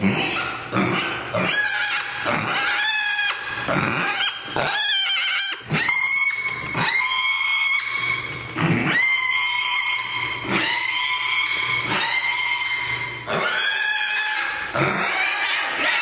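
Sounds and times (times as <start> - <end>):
pig squealing: 0.0 - 16.0.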